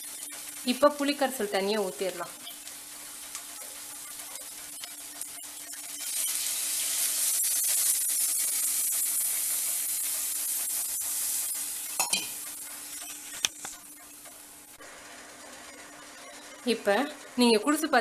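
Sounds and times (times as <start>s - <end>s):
liquid sizzling in hot oil: 0.0s - 18.0s.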